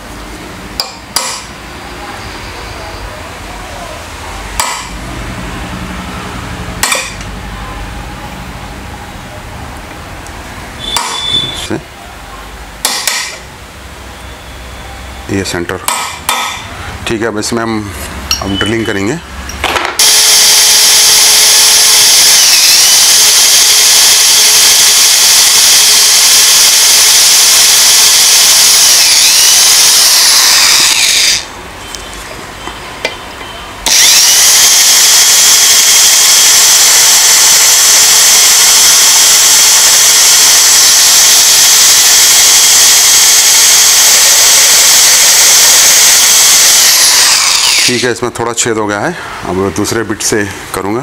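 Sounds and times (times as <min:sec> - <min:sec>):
electric drill boring: 0:20.0 - 0:31.5, 0:33.8 - 0:48.1.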